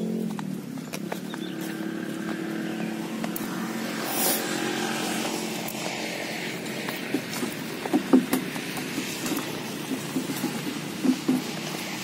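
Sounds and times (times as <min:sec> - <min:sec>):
sharp knocks: 0:07.1 - 0:11.6.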